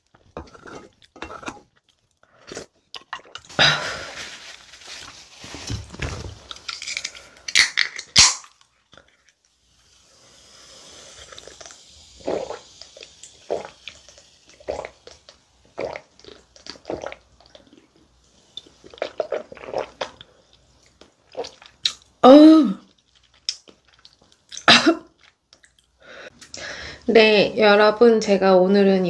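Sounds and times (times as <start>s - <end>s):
soda fizzing: 9.3s - 22.2s.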